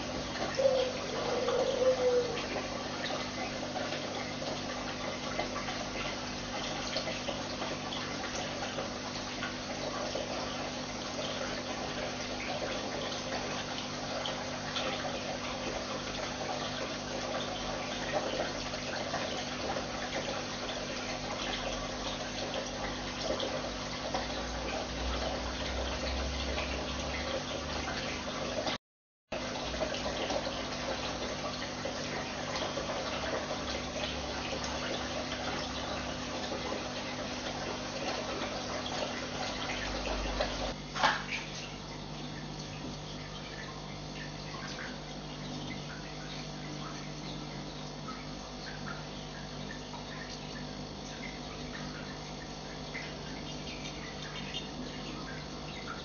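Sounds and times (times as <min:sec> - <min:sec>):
aquarium water running: 0:00.0 - 0:56.0
constant low hum: 0:00.0 - 0:56.0.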